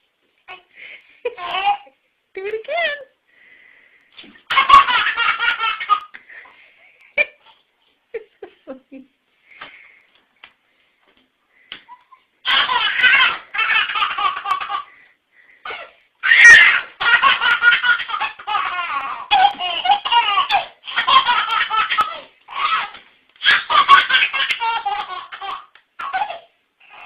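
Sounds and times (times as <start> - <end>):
baby laughing: 1.3 - 2.0, 4.5 - 6.2, 11.9 - 15.0, 15.6 - 27.0.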